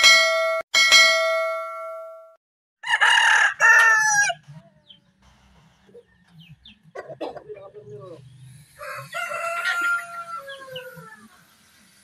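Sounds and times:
bell chime: 0:00.0 - 0:02.4
rooster crowing: 0:02.8 - 0:04.4, 0:08.7 - 0:11.5.

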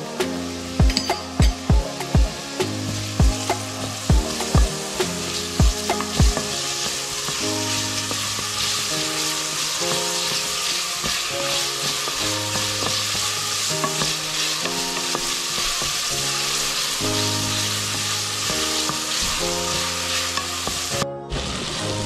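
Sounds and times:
onion sizzling in a saucepan: 0:00.0 - 0:22.0
wooden spatula scraping pan: 0:00.0 - 0:22.0.

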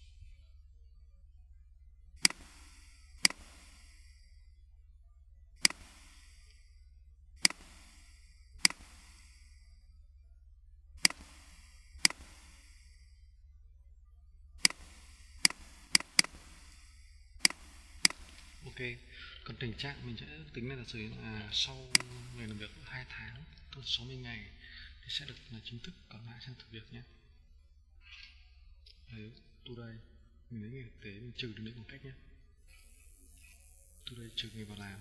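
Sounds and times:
low steady hum: 0:00.0 - 0:35.0
computer mouse clicking: 0:02.2 - 0:04.1, 0:05.6 - 0:06.6, 0:07.4 - 0:09.5, 0:11.0 - 0:13.0, 0:14.6 - 0:18.8, 0:21.9 - 0:22.7.

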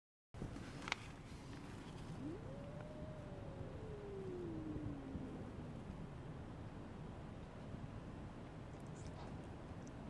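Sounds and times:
cat yowling: 0:02.1 - 0:05.8.

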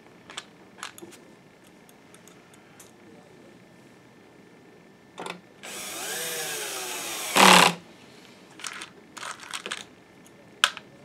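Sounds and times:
electric screwdriver running: 0:05.6 - 0:07.8.

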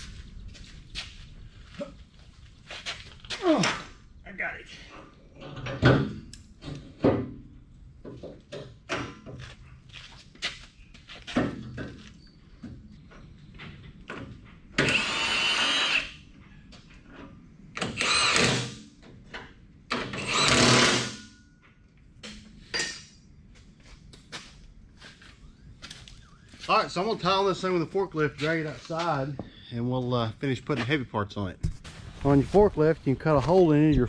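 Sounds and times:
metal clanks and knocks: 0:05.4 - 0:09.5.

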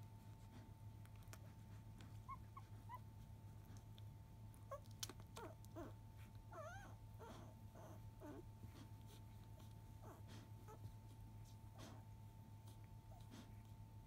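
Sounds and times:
puppies squeaking: 0:02.2 - 0:03.0
puppies whimpering: 0:04.7 - 0:08.5.

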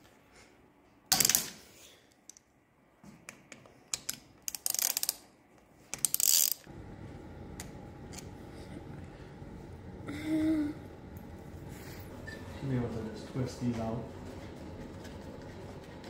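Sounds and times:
hand ratchet clicking: 0:04.0 - 0:05.2, 0:06.0 - 0:06.6.

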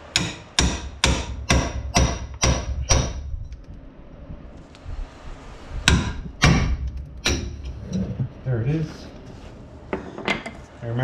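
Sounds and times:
hammer striking metal: 0:00.0 - 0:03.2, 0:05.8 - 0:07.7.

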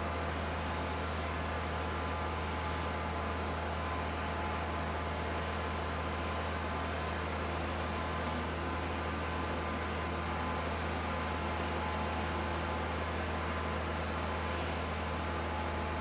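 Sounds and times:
low machinery hum: 0:00.0 - 0:16.0.

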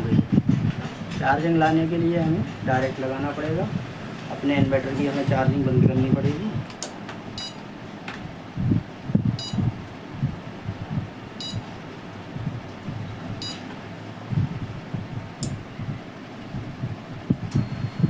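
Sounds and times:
high-pitched buzzer beeps: 0:07.4 - 0:07.6, 0:09.4 - 0:09.6, 0:11.4 - 0:11.6, 0:13.4 - 0:13.6, 0:17.6 - 0:18.0
sharp click: 0:15.4 - 0:15.6.

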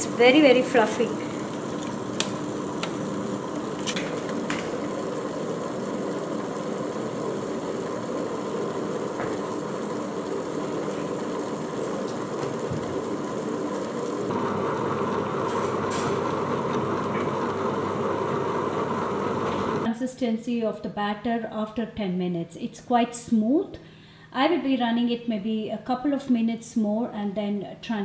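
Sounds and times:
wet grinder motor humming: 0:00.0 - 0:19.9.

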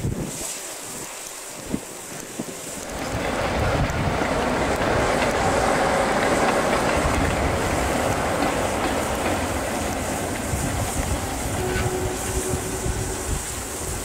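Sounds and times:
diesel locomotive rumbling past: 0:02.9 - 0:14.0.

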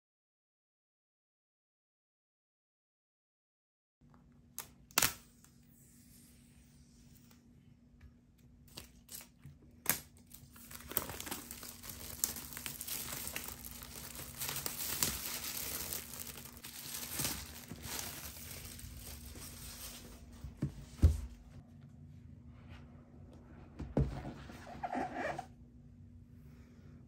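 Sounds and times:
plastic wrap crinkling and tearing: 0:08.7 - 0:20.3.

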